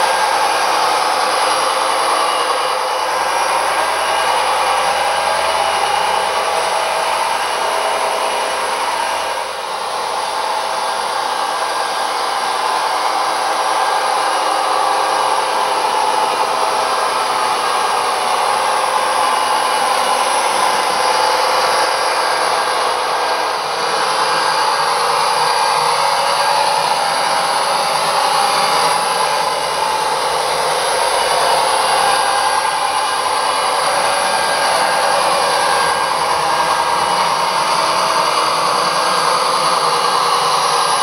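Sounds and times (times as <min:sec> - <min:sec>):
model locomotive diesel engine sound: 0:00.0 - 0:41.0.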